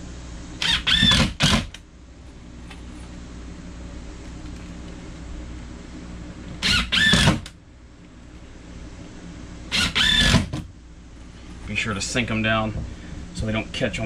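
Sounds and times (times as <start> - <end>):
cordless drill driving screws: 0.6 - 1.7, 6.6 - 7.5, 9.7 - 10.6.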